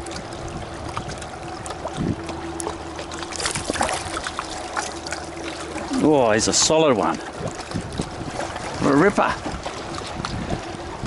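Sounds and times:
faint steady hum: 0.0s - 8.8s
water splashing: 0.0s - 11.0s.

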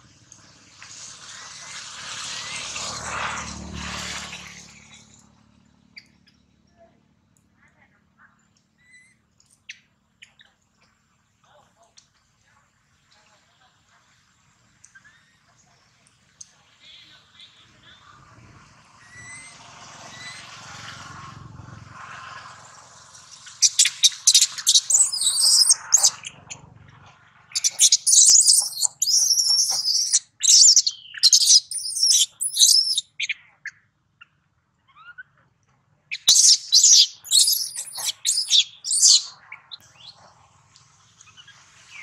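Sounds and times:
infant monkey screaming: 23.6s - 26.2s, 27.6s - 33.0s, 36.3s - 39.3s.

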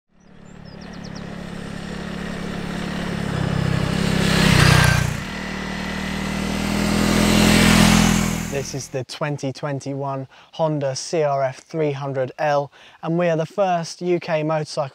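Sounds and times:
trail bike engine passing: 0.1s - 8.9s.

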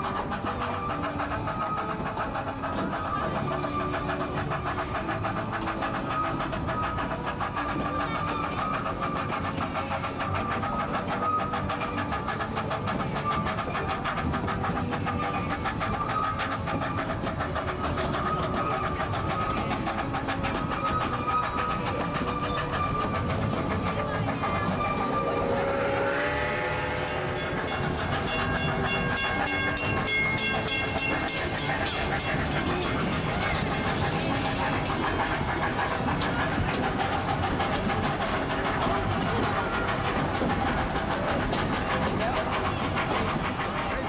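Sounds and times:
train cars rattling over rail joints: 0.0s - 44.0s
steam train whistle: 24.8s - 27.8s.

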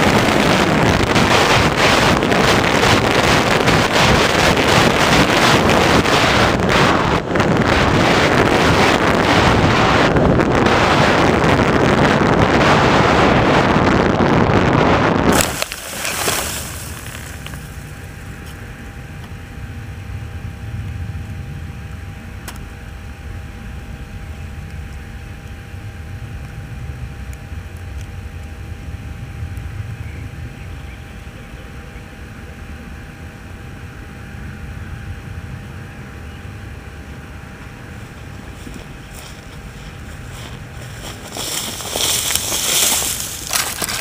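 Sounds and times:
faint steady hum: 0.0s - 44.0s
wind rumble on microphone: 0.0s - 44.0s
rustle of crop stalks: 15.3s - 18.7s, 38.0s - 44.0s.

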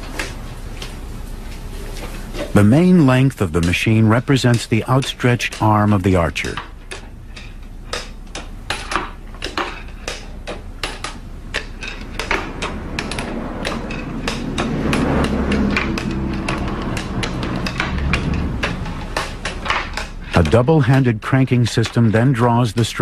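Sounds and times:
low steady hum: 0.0s - 23.0s
catapult clicks and knocks: 7.9s - 20.6s.

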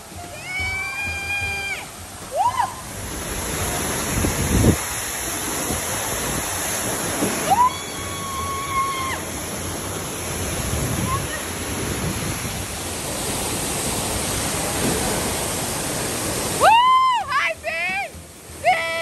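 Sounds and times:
water rushing down a slide: 0.0s - 19.0s.

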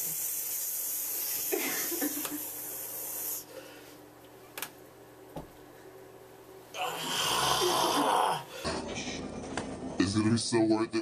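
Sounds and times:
steady high hiss: 0.0s - 3.8s.

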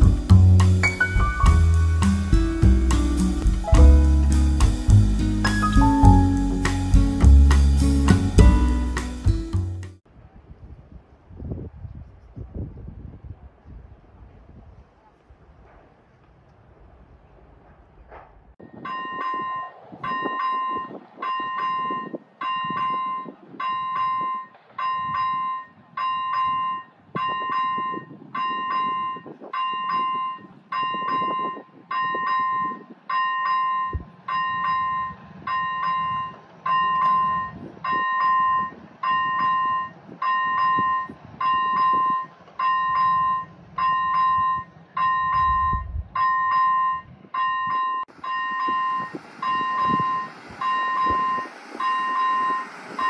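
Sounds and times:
level crossing electronic bell: 18.8s - 52.7s.

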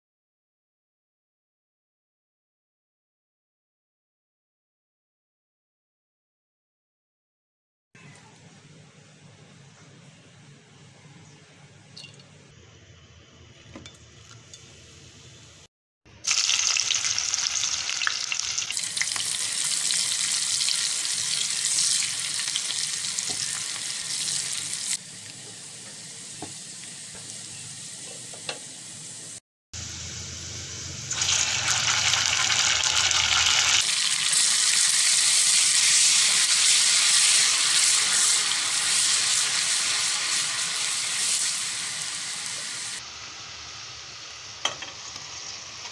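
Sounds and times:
onions sizzling in hot oil: 16.2s - 45.9s.

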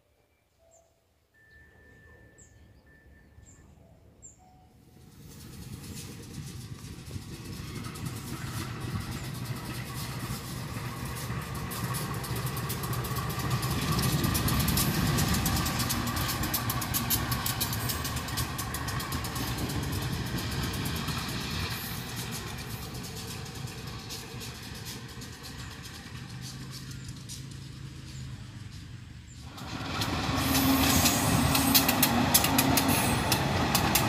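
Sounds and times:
locomotive engine rumbling: 3.6s - 34.0s.

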